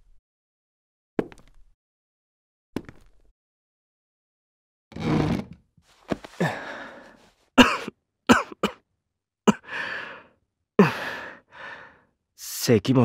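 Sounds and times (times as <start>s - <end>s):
man coughing: 7.6s - 8.8s, 9.5s - 9.8s.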